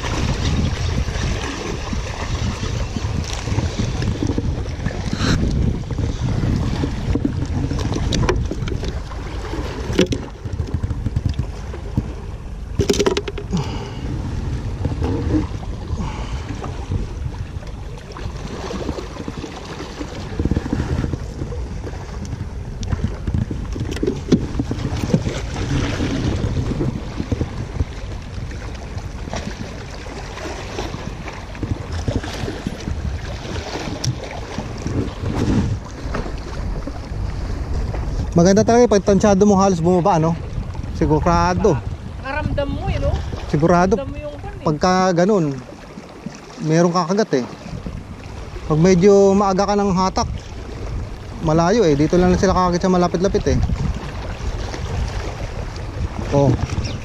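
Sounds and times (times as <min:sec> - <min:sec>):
sea water washing against rocks: 0:00.0 - 0:57.0
wind rumbling on microphone: 0:00.0 - 0:57.0
handling clicks and knocks: 0:12.8 - 0:13.5.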